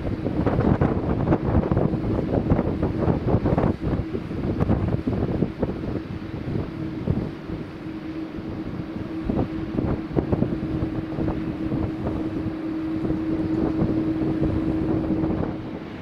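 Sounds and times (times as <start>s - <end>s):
jet engines droning: 0.0s - 16.0s
wind buffeting microphone: 0.0s - 16.0s.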